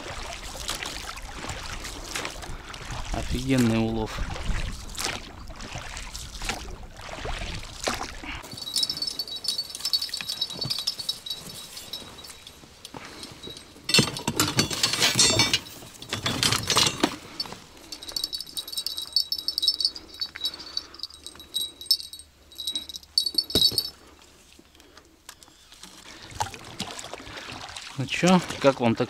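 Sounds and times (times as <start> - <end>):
light metallic jingling: 8.4 - 24.2.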